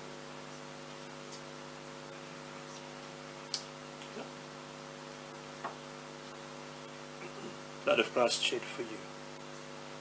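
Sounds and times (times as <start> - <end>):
electrical mains hum: 0.0 - 10.0.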